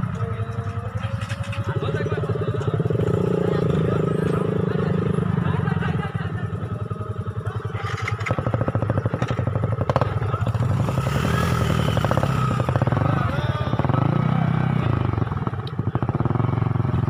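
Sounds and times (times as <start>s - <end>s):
motorcycle engines at low revs: 0.0s - 17.0s
nearby engine putter: 0.1s - 3.2s, 7.6s - 11.0s.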